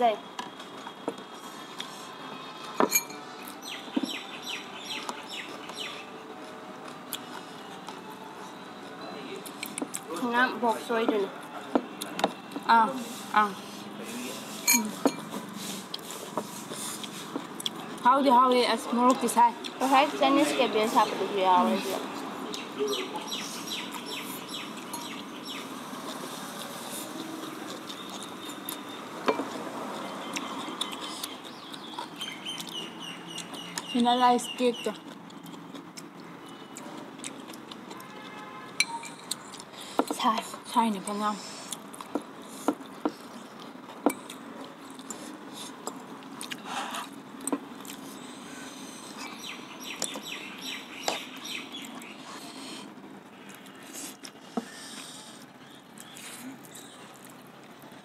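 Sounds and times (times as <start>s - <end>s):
noodles slurped and chewed: 41.1s - 50.4s, 51.0s - 58.0s
wet mouth clicks: 42.7s - 48.0s.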